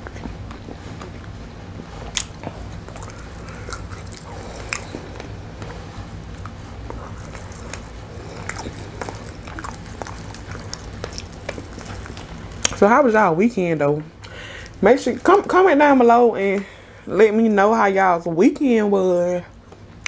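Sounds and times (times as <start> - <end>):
person chewing and biting: 2.0 - 12.8.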